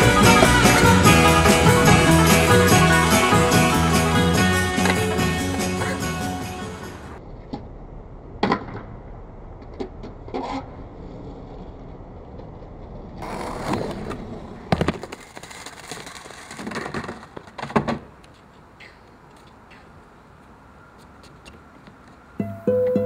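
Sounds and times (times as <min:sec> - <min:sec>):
skateboard clacking: 0:00.0 - 0:07.2, 0:13.2 - 0:20.0
skateboard wheels rolling on ramp: 0:00.0 - 0:18.7.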